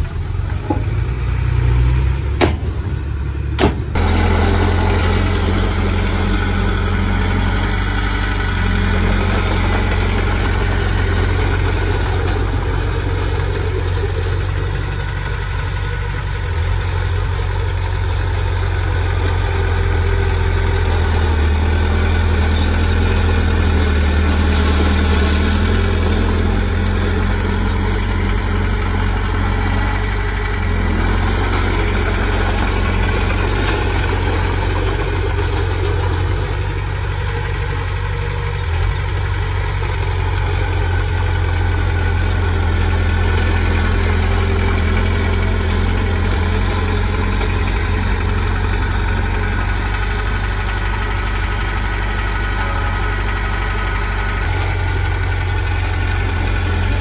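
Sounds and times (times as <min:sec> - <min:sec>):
bulldozer diesel engine: 0:00.0 - 0:57.0
brief knock: 0:03.6 - 0:03.9.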